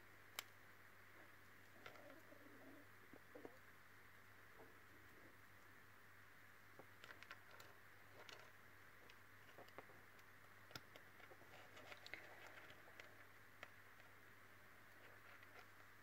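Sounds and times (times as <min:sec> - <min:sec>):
low steady hum: 0:00.0 - 0:16.0
wire ticks and clicks: 0:06.7 - 0:14.2.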